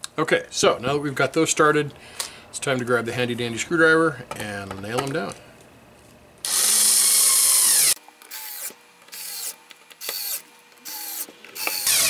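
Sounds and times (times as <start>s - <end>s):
cordless electric screwdriver: 6.4s - 12.0s.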